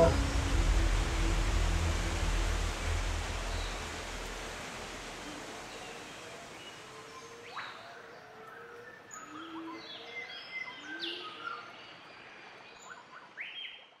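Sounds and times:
background hiss: 0:00.0 - 0:09.4.

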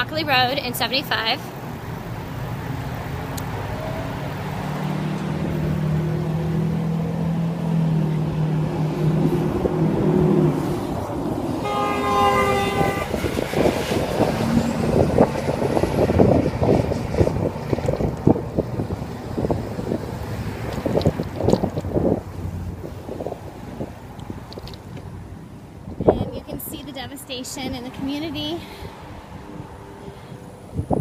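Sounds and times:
vehicle engine humming: 0:00.0 - 0:31.0
wind buffeting microphone: 0:01.8 - 0:31.0
vehicle horn: 0:11.6 - 0:13.4.

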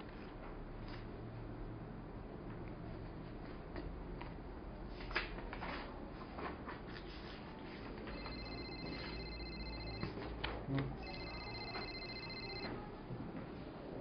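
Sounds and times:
desk telephone ringing: 0:08.1 - 0:10.3, 0:11.0 - 0:12.9.

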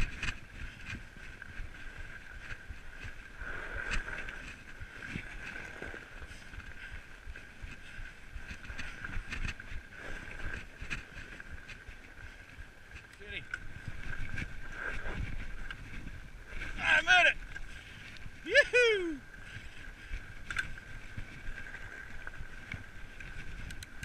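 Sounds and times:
bike riding hum: 0:00.0 - 0:24.0
wind on microphone: 0:00.0 - 0:24.0
bike knocking and rattling: 0:08.4 - 0:09.8.

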